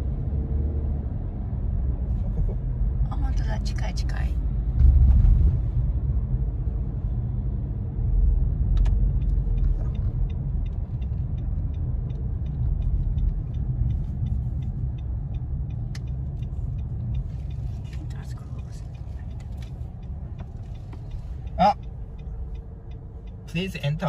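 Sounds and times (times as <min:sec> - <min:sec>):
engine and tyre rumble: 0:00.0 - 0:24.0
low thump: 0:04.7 - 0:05.8
turn signal ticking: 0:06.2 - 0:24.0.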